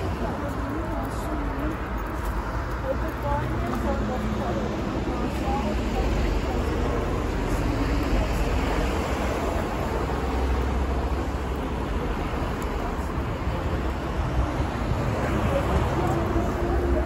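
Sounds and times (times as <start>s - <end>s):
low rumble of road traffic: 0.0s - 17.0s.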